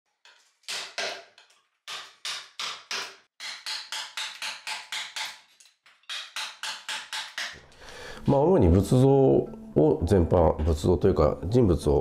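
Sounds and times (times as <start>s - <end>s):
hammer striking chisel: 0.2s - 7.6s.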